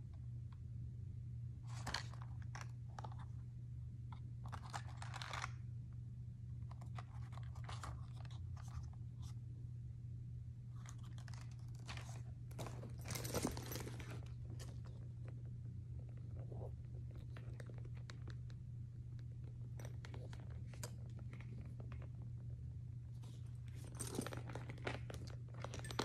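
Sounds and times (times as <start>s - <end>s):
steady low hum: 0.0s - 26.0s
handbag rustle: 11.0s - 14.9s, 23.1s - 26.0s.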